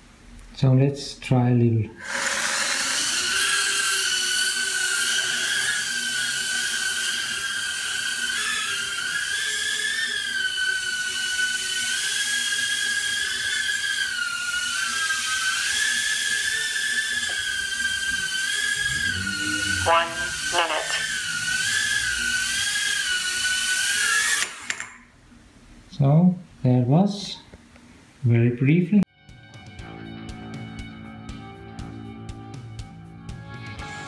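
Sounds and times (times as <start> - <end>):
quadcopter motors whining: 2.0 - 25.0.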